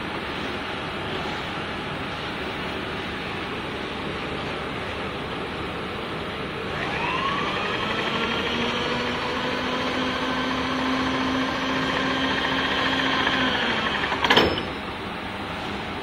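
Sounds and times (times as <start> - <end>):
power-feed motor whine: 6.6 - 14.4.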